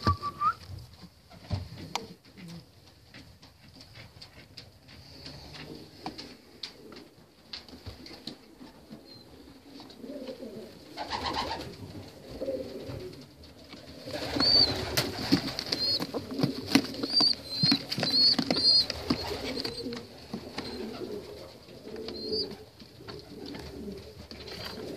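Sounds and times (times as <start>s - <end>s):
pigeons cooing: 5.0s - 7.4s, 8.0s - 24.9s
rustling and knocks from handling: 12.3s - 21.2s.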